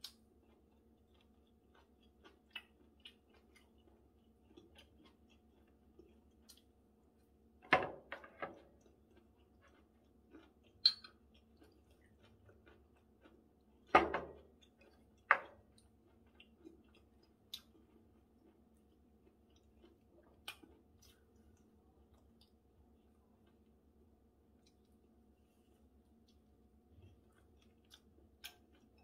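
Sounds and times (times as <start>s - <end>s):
quiet chewing: 0.0s - 7.6s, 8.2s - 29.0s
glass bottle clinking: 10.8s - 11.1s.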